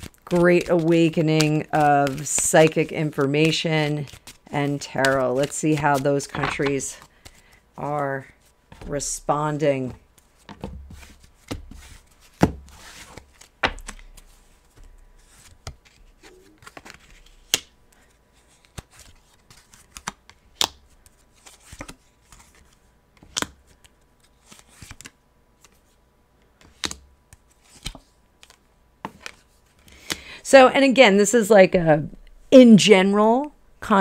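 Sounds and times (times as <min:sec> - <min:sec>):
cards clicking and tapping: 0:00.1 - 0:04.4, 0:05.0 - 0:07.6, 0:13.2 - 0:14.9.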